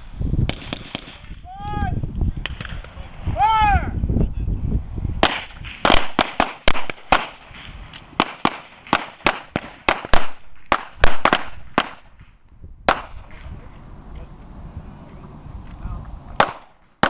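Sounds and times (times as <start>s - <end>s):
handgun shots: 16.4s - 16.7s.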